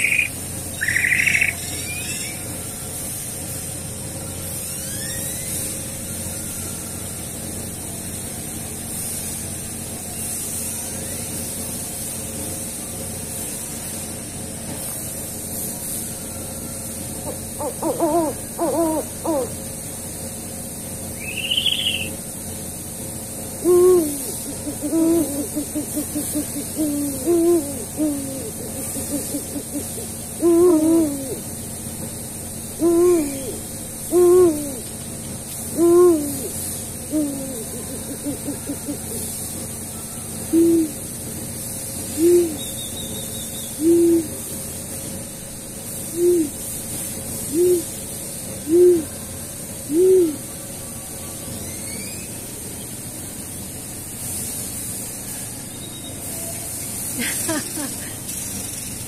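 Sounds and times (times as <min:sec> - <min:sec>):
owl hooting: 0:00.0 - 0:02.6, 0:16.8 - 0:19.8, 0:21.1 - 0:22.2, 0:23.5 - 0:31.7, 0:32.6 - 0:35.0, 0:35.6 - 0:41.2, 0:42.0 - 0:44.6, 0:46.0 - 0:46.7, 0:47.4 - 0:48.0, 0:48.6 - 0:51.0
steady hiss: 0:00.0 - 0:59.0.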